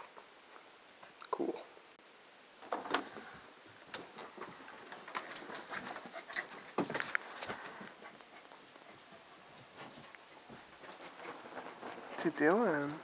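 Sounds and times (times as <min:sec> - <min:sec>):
dogs shuffling and rustling: 0:03.7 - 0:13.0
collar tags jingling: 0:05.0 - 0:13.0.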